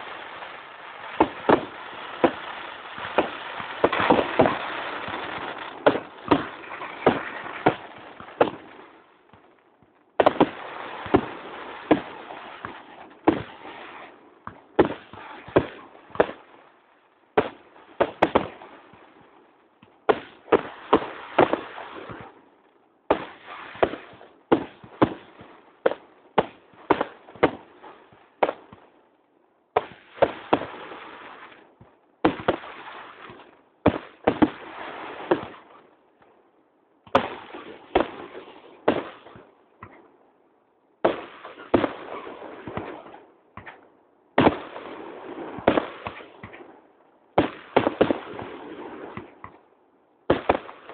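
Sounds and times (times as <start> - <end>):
firework shells bursting: 0.0 - 9.6
rumbling crackle: 0.0 - 9.6.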